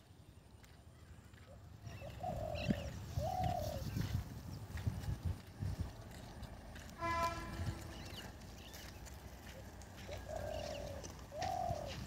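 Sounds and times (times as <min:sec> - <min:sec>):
horn-like call: 0:07.0 - 0:08.0.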